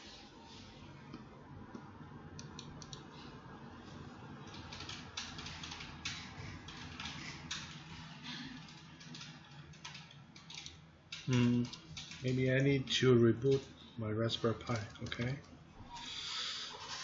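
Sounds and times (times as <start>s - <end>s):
low steady hum: 0.0s - 17.0s
computer keyboard keys clicking: 2.4s - 3.0s, 4.4s - 12.7s, 13.4s - 13.7s, 14.4s - 15.5s.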